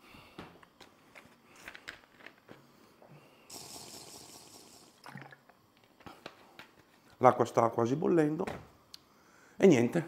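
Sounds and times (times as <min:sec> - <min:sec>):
rush of liquid fizz: 0:03.5 - 0:05.4.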